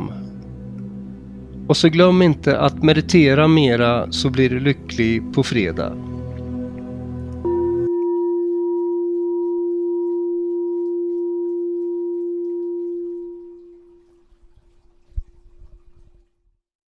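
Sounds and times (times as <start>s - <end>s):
meditation bell ringing: 7.4s - 14.0s.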